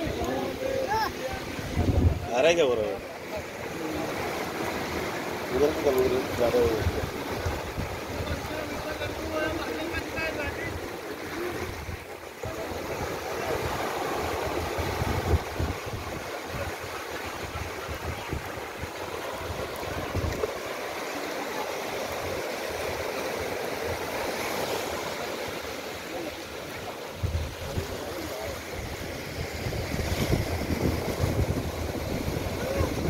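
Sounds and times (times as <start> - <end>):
wind rumbling on microphone: 0.0 - 2.5, 6.3 - 21.0, 26.8 - 33.0
small waves washing on shore: 0.0 - 33.0.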